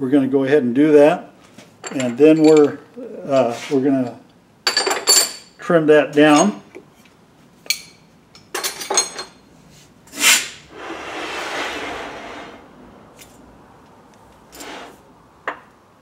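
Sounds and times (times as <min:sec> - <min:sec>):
metal clinks and knocks: 0:01.8 - 0:02.9, 0:04.0 - 0:05.6, 0:07.6 - 0:09.4.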